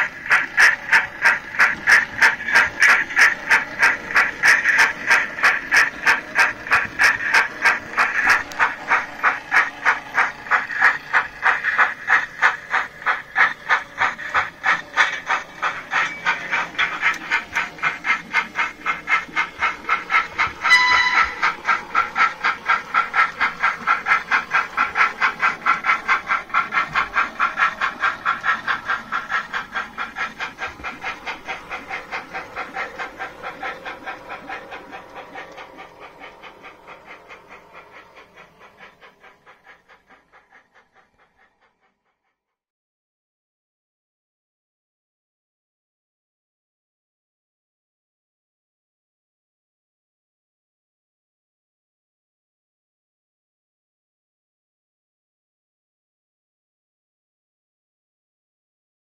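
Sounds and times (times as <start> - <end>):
steam locomotive chuffing: 0.0 - 42.4
train whistle blast: 20.7 - 21.4.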